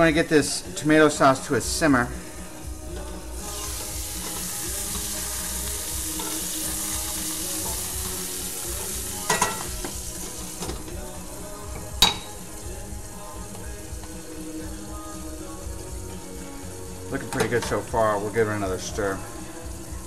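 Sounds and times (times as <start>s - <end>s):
food sizzling in a skillet: 0.0s - 20.0s.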